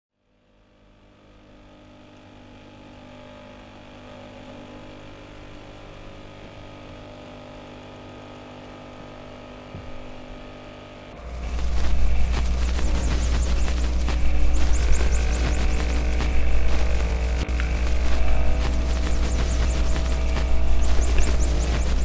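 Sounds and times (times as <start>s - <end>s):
steady hum of held tones: 11.2s - 22.0s.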